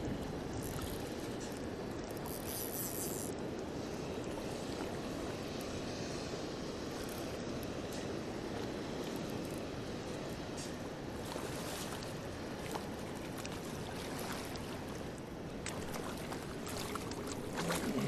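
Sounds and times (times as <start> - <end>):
river water rushing: 11.2 - 18.0.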